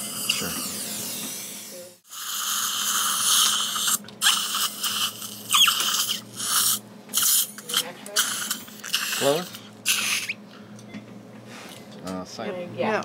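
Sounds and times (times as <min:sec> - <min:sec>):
suction tip hissing: 0:00.0 - 0:10.4
suction squeals: 0:02.8 - 0:06.3.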